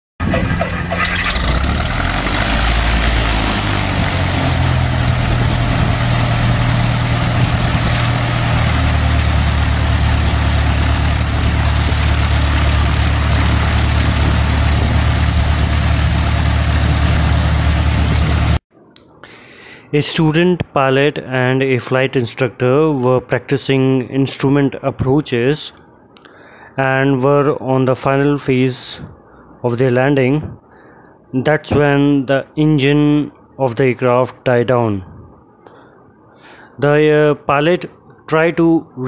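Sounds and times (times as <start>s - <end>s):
loud engine drone: 0.2s - 18.6s
rushing noise: 0.2s - 18.6s.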